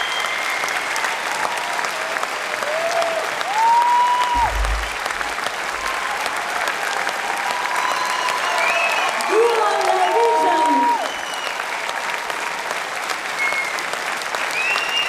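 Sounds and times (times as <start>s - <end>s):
long sliding whistles: 0.0s - 1.4s, 7.6s - 9.2s, 11.0s - 11.6s, 14.5s - 15.0s
audience applauding: 0.0s - 15.0s.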